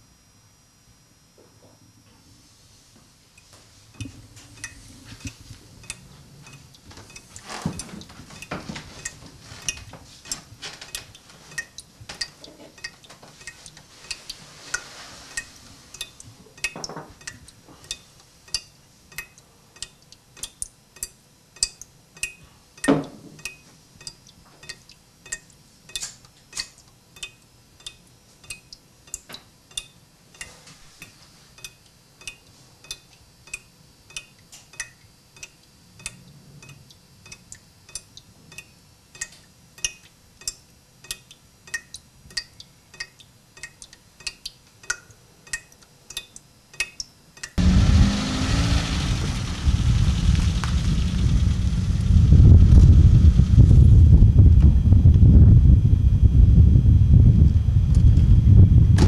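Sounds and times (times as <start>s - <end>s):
steady ticking: 4.0s - 7.4s.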